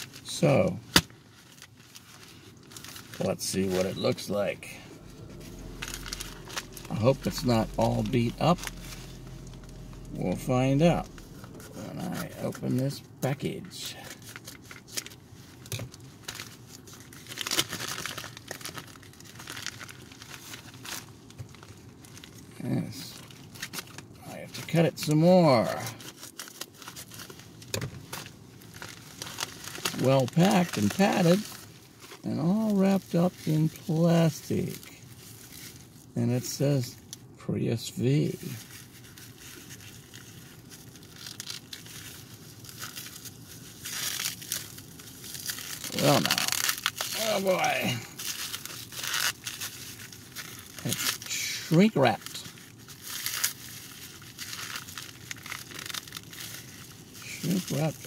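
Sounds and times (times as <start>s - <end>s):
plastic packaging crinkling: 0.0s - 24.8s, 25.6s - 36.1s, 38.2s - 58.0s.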